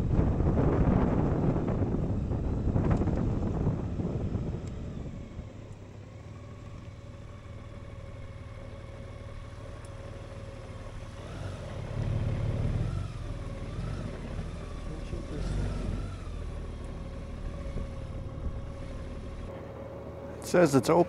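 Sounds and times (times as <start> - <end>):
motorcycle engine rumbling: 0.0 - 21.0.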